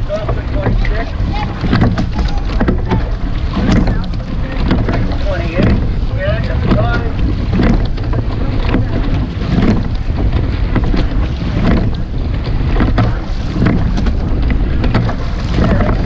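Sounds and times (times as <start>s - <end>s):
faint knock of rowing strokes: 0.0s - 16.0s
water rushing past boat: 0.0s - 16.0s
wind buffeting microphone: 0.0s - 16.0s.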